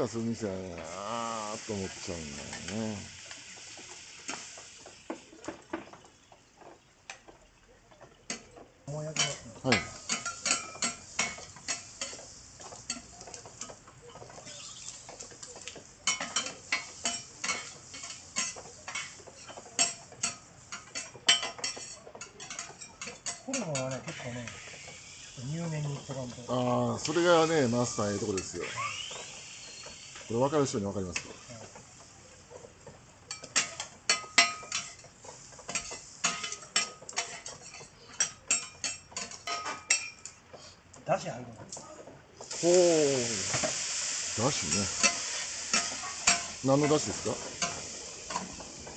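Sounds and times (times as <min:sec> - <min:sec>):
metal spatulas clacking on griddle: 0:07.1 - 0:24.2, 0:32.5 - 0:40.4, 0:44.6 - 0:48.9.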